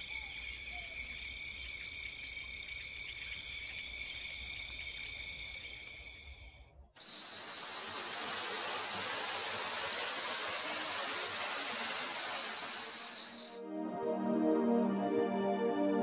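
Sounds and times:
high-pitched insect chorus: 0.0s - 13.6s
even hiss: 5.2s - 13.6s.

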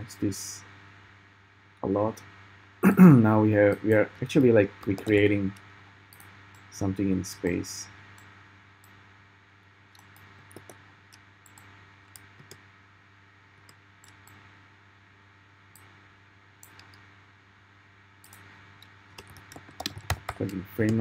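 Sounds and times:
low steady hum: 0.0s - 21.0s
mouse and keyboard clicks: 10.0s - 12.6s, 19.1s - 21.0s.

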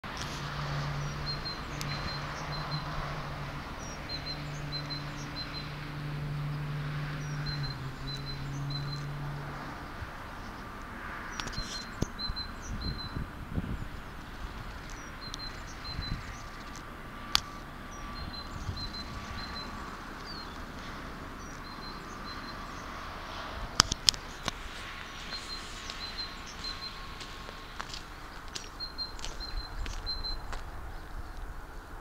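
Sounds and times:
outdoor background noise: 0.0s - 32.0s
vehicle engine hum: 0.0s - 32.0s
small birds chirping: 11.3s - 23.1s, 23.8s - 31.9s.

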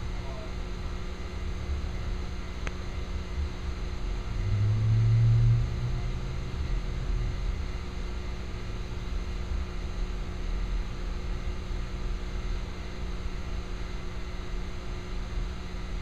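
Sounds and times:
car engine running low: 0.0s - 10.9s
low rumble and hum: 0.0s - 16.0s.

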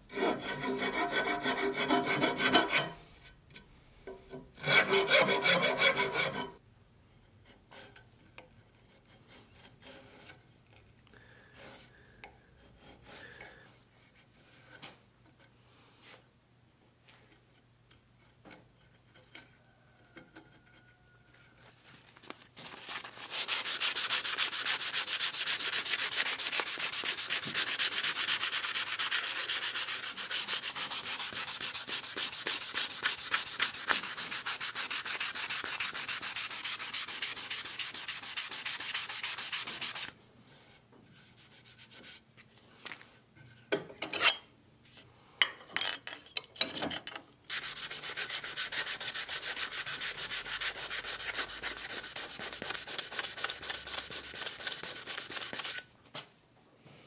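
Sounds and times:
sanding wood by hand: 0.1s - 2.8s, 4.6s - 6.5s, 23.0s - 40.1s, 47.5s - 55.8s.

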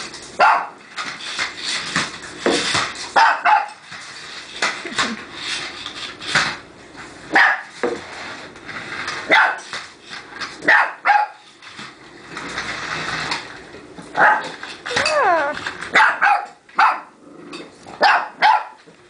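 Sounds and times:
puppy barking: 0.4s - 0.8s, 3.2s - 3.8s, 7.3s - 7.7s, 9.3s - 9.6s, 10.6s - 11.4s, 14.2s - 17.1s, 18.0s - 18.8s.

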